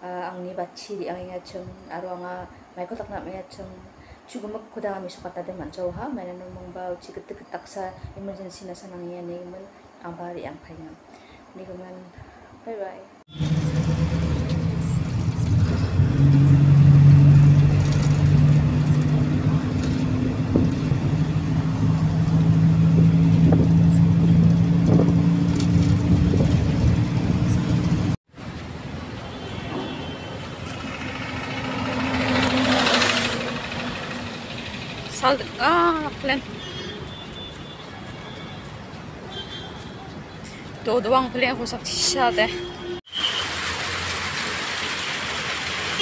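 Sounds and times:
roadside traffic noise: 0.0 - 46.0
engine and road noise inside vehicle: 13.2 - 38.4, 42.2 - 46.0
vehicle passing: 13.3 - 39.2.

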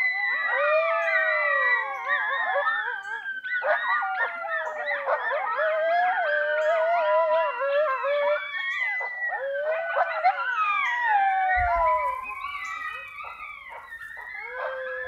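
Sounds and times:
coyotes howling: 0.0 - 15.0
coyote yips: 7.4 - 15.0.

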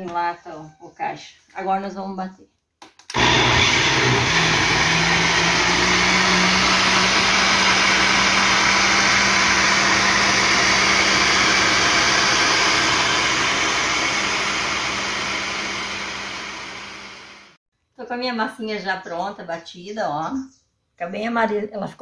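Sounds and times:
blender motor running: 3.1 - 17.6.

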